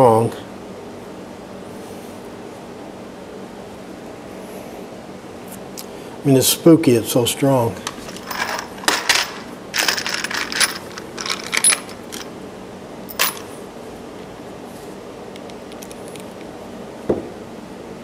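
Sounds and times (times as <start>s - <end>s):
screws clinking in plastic tub: 7.8s - 12.3s, 13.1s - 13.5s
dull knock: 17.1s - 17.3s.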